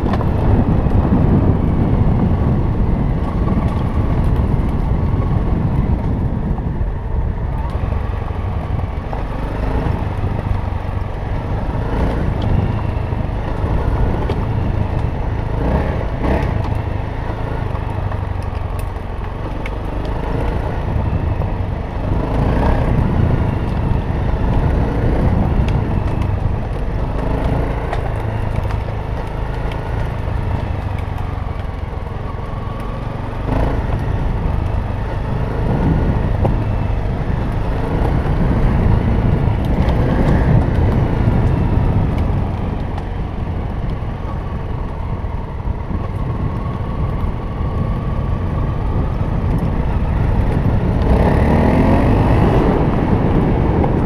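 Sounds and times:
heavy low wind rumble: 0.0 - 54.0
dirt bike engine revving: 15.5 - 17.6, 33.3 - 34.4, 50.5 - 53.9.

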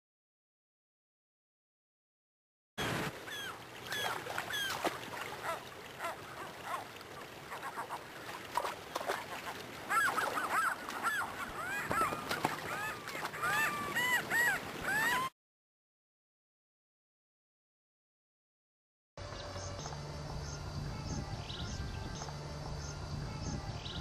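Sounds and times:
gulls calling: 2.8 - 15.3
shallow river rushing: 2.8 - 15.3.

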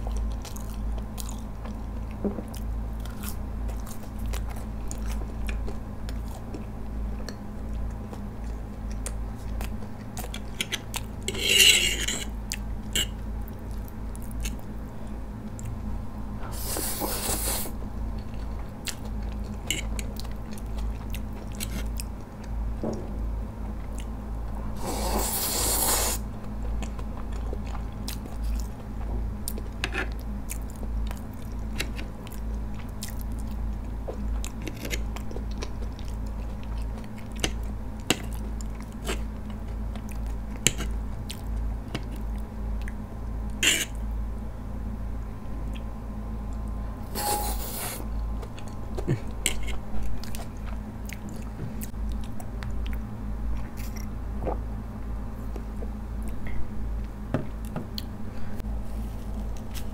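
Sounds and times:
chewing noodles: 0.0 - 11.2, 16.6 - 22.6, 24.8 - 43.0, 46.6 - 54.6
loud hissing slurps: 16.6 - 17.7, 24.8 - 26.2.

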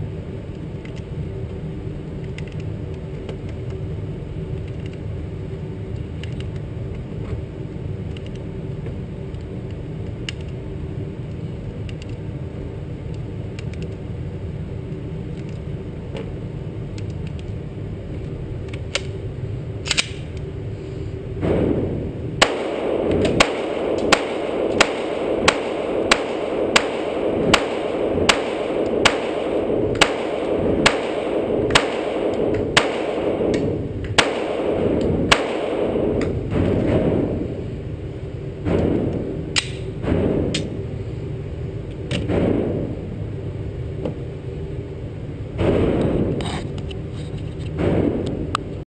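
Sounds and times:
pistol shots indoors: 21.4 - 40.9.

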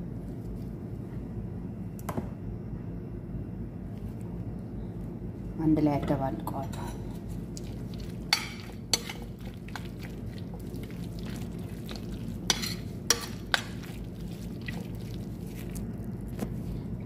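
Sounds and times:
steady low hum: 0.0 - 17.0
spoon stirring sticky mixture: 7.1 - 16.8.

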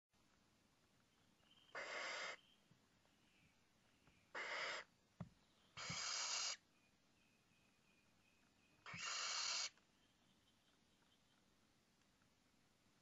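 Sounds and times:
owl chicks hissing calls: 1.7 - 2.4, 4.3 - 4.9, 5.7 - 6.6, 8.8 - 9.8.

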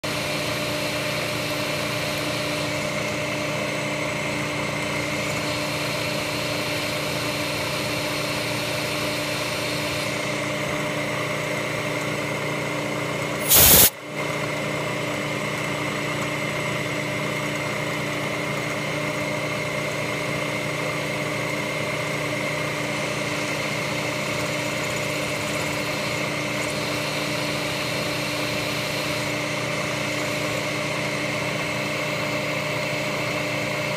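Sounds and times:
short loud burst: 13.4 - 13.9.

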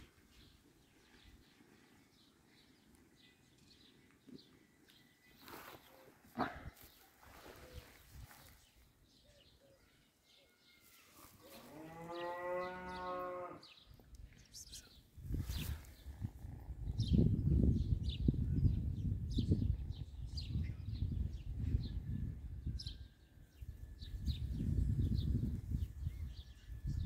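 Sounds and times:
cow mooing: 11.6 - 13.7.

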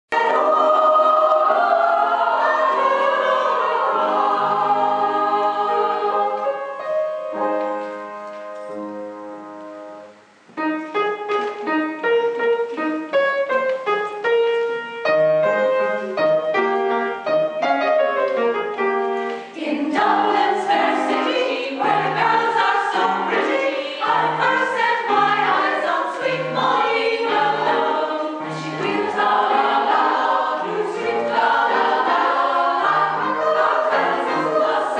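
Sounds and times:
choir singing: 0.1 - 7.6, 19.5 - 34.9.

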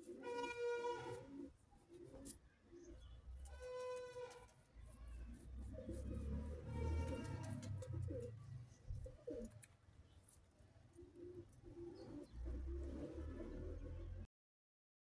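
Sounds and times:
pigeons cooing: 0.0 - 3.2, 5.7 - 9.7, 10.9 - 14.2.

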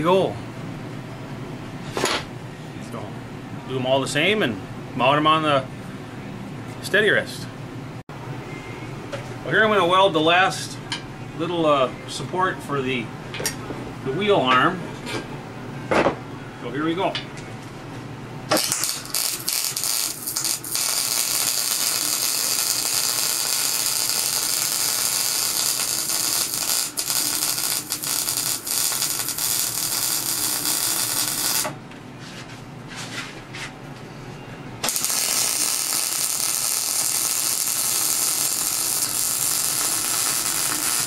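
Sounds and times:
welder arc crackling: 18.5 - 31.8, 34.8 - 41.0.

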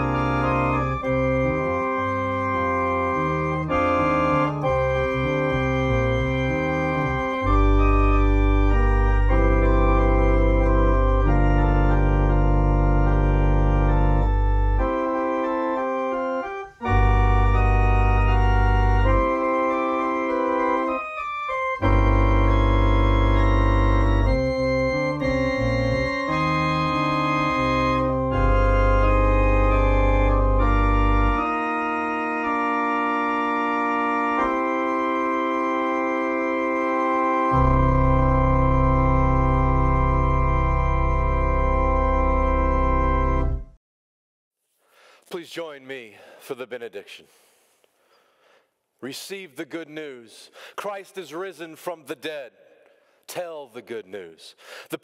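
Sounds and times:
organ playing slow hymn: 0.0 - 43.8.

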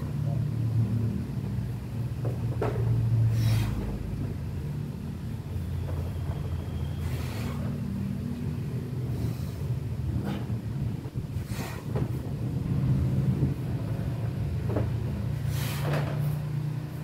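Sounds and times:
motor rumbling: 0.0 - 17.0
short hisses: 3.3 - 4.0, 15.4 - 16.4.

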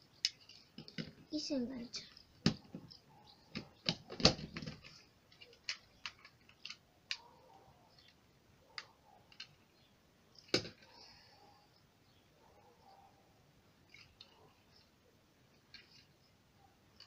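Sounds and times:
plastic toy parts clicking: 0.2 - 1.2, 2.0 - 7.3, 8.0 - 9.7, 13.9 - 14.8, 15.5 - 16.2.

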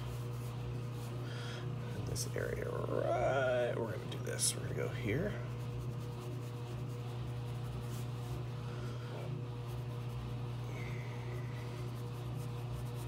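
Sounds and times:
laundry machine humming: 0.0 - 13.0
pencil scratching on paper: 4.8 - 13.0.

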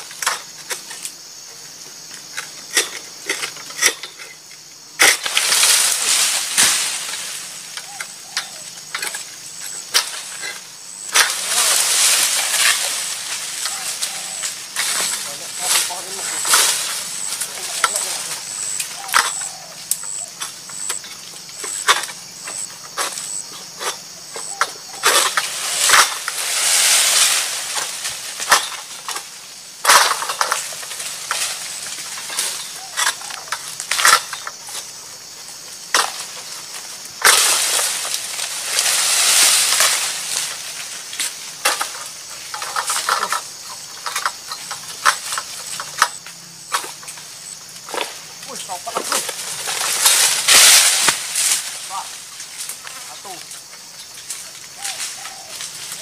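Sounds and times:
fronds rustling: 0.0 - 56.0.

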